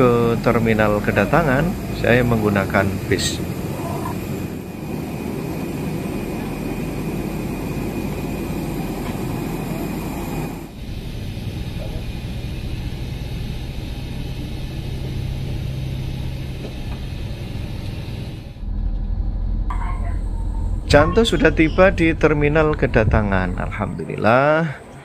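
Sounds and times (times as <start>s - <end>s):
aircraft and ground vehicle rush: 0.0s - 25.0s
shuttle bus engine hum: 0.0s - 25.0s
faint high steady tones: 19.7s - 25.0s.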